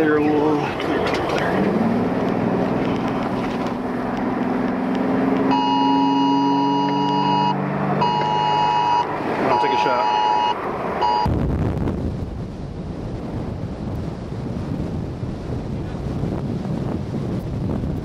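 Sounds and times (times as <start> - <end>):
wind noise: 0.0 - 5.6, 10.6 - 18.0
two-tone emergency alert signal: 5.5 - 11.3.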